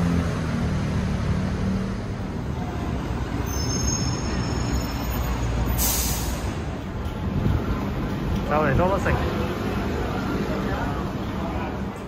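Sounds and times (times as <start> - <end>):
traffic rumble: 0.0 - 12.0
short hiss: 5.8 - 6.5.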